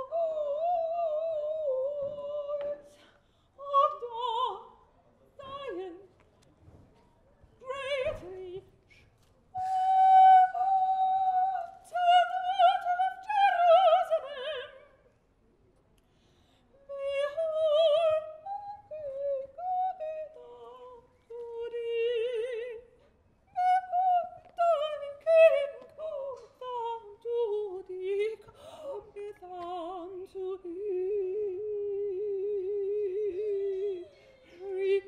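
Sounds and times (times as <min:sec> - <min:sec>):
woman singing operatically: 0:00.0 - 0:04.8, 0:05.4 - 0:06.1, 0:07.6 - 0:08.6, 0:09.6 - 0:15.0, 0:16.9 - 0:22.9, 0:23.5 - 0:35.0
singer breathing: 0:16.0 - 0:16.8, 0:28.5 - 0:28.9.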